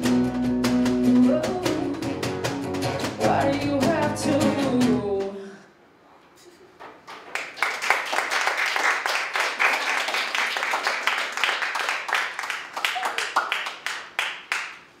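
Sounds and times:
people clapping: 7.1 - 14.9.

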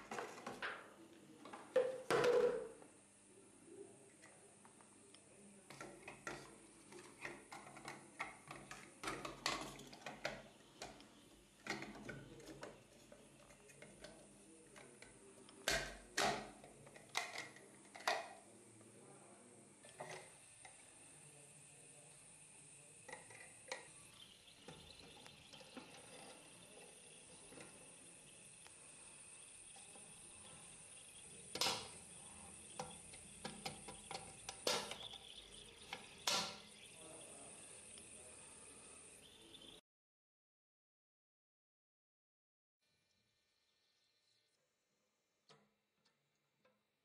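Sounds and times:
plastic parts clicking and knocking: 5.6 - 18.5, 23.0 - 38.1.

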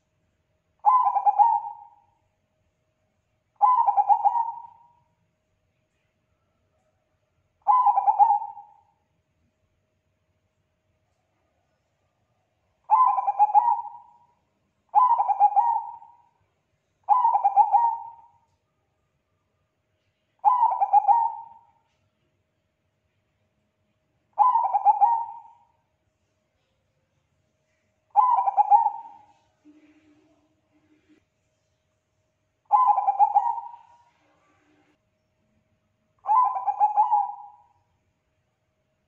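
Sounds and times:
dove cooing: 0.8 - 2.0, 3.6 - 4.9, 7.6 - 8.9, 12.9 - 14.2, 14.9 - 16.3, 17.1 - 18.4, 20.4 - 21.7, 24.4 - 25.7, 28.1 - 30.4, 32.7 - 34.7, 36.2 - 37.7.

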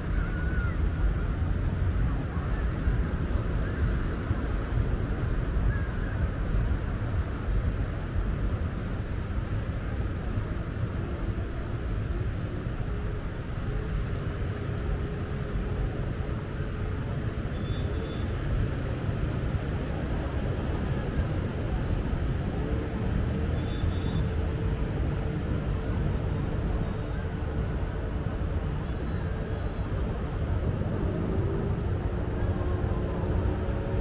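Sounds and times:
engine droning: 10.2 - 34.0.

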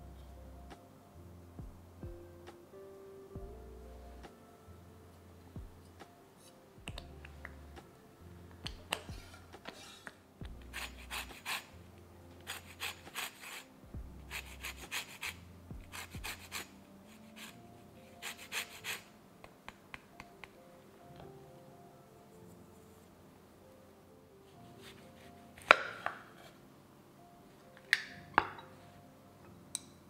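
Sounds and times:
lemon rind grating: 10.7 - 11.7, 12.4 - 13.7, 14.3 - 17.6, 18.2 - 19.1.

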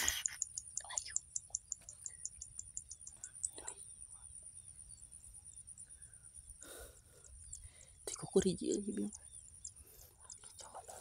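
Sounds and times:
high-pitched buzz with ticks: 0.0 - 3.8
small bird chirps: 0.0 - 11.0.

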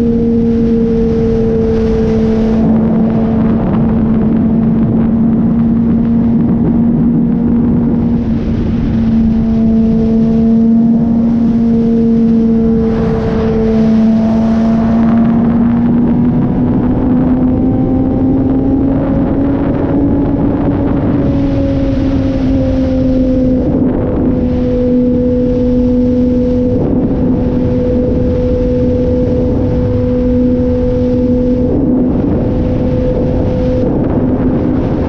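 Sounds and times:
motorcycle engine cruising: 0.0 - 35.0
wind and road noise: 0.0 - 35.0.

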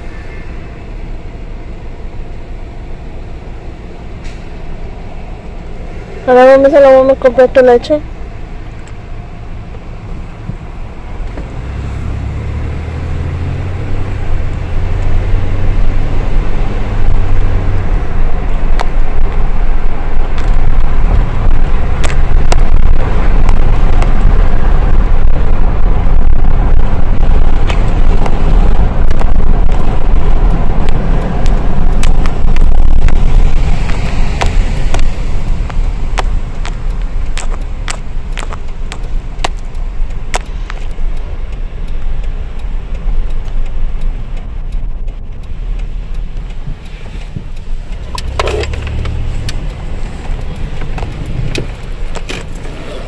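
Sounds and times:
car rumble from inside: 0.0 - 53.0.

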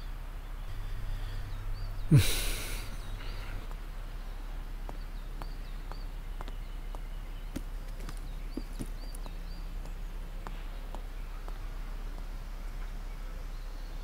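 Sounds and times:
small bird chirping: 0.0 - 11.7
steady low hum: 0.0 - 14.0.

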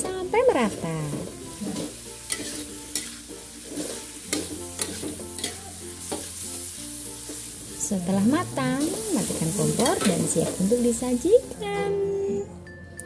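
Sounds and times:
sauce sizzling: 0.0 - 11.6
metal spatula scraping wok: 0.6 - 6.4, 8.3 - 10.7.

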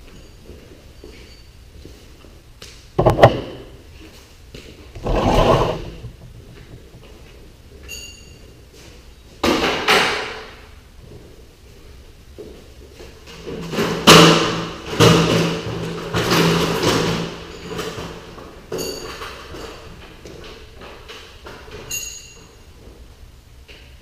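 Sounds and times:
scraping sliding sounds: 5.0 - 7.1.

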